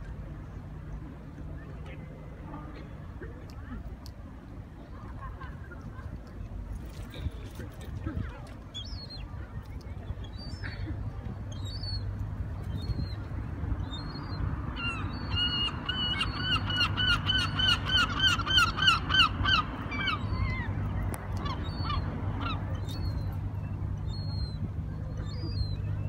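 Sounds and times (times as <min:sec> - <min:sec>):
gulls calling: 0:08.0 - 0:26.0.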